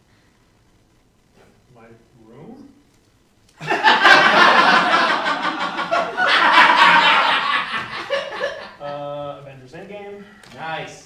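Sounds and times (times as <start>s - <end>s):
audience laughing: 3.6s - 9.0s.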